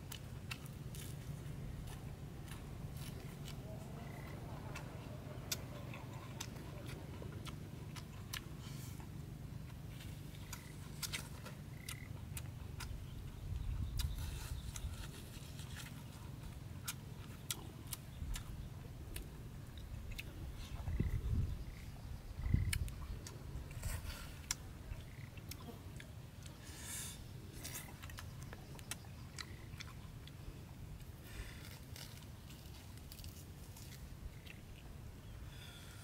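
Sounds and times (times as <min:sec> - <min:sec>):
person chewing and lip-smacking: 0:00.0 - 0:20.4, 0:22.5 - 0:24.6, 0:25.3 - 0:26.6, 0:27.6 - 0:30.4
mouth clicks and crunches: 0:00.0 - 0:34.9
low steady rumble: 0:00.0 - 0:36.0.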